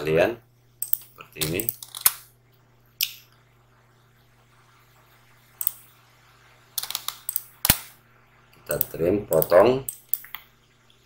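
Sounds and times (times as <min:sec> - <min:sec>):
low electrical hum: 0:00.0 - 0:11.0
computer mouse clicks: 0:00.8 - 0:02.2, 0:05.6 - 0:05.8, 0:06.8 - 0:07.9.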